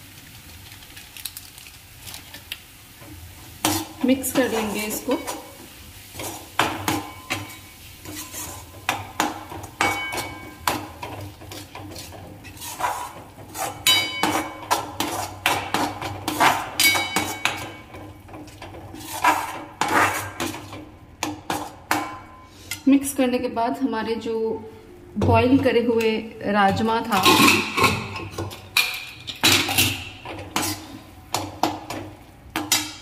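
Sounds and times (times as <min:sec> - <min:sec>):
metal spoon scraping metal pan: 0:03.6 - 0:22.9, 0:26.7 - 0:31.5.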